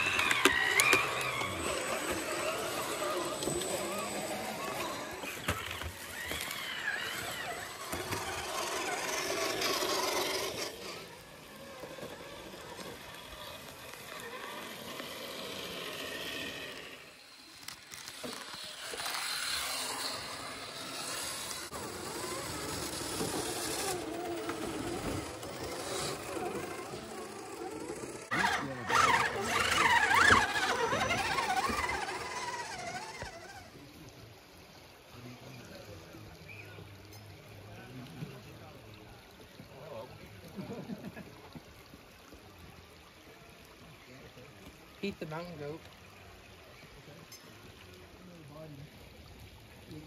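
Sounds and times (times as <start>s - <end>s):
small electric motors whining: 0.0s - 34.0s.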